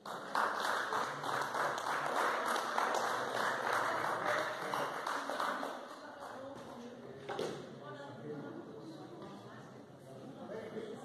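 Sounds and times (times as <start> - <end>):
group applauding: 0.0 - 6.5.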